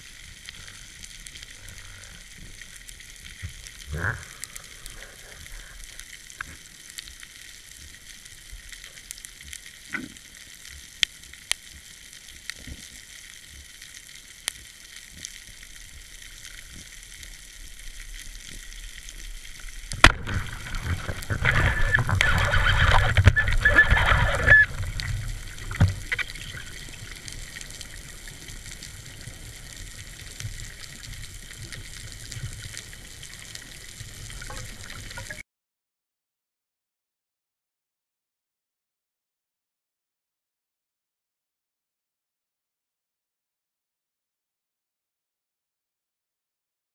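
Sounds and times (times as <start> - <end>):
underwater hiss: 0.0 - 9.0
faint clicks: 0.0 - 35.4
rushing bubbling water: 0.0 - 35.4.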